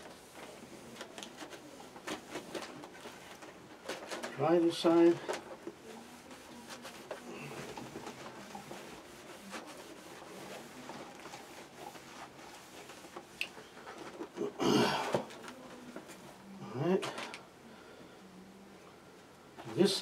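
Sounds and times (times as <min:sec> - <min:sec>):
rag rubbing cardboard: 0:06.0 - 0:13.4.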